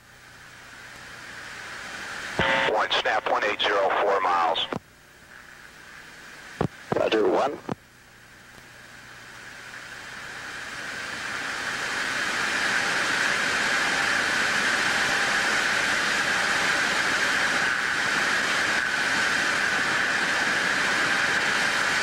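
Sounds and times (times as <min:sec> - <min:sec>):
radio static hiss: 0:02.0 - 0:08.9.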